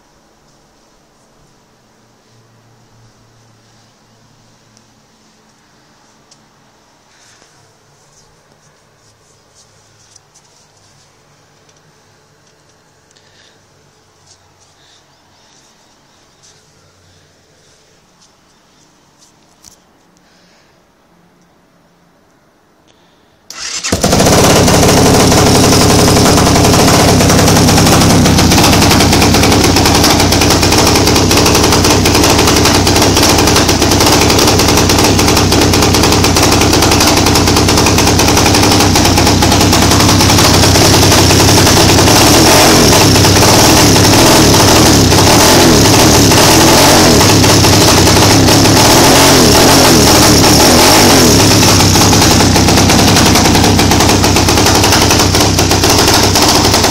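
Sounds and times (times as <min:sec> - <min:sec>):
motorcycle engine running loud: 0:23.5 - 0:56.9.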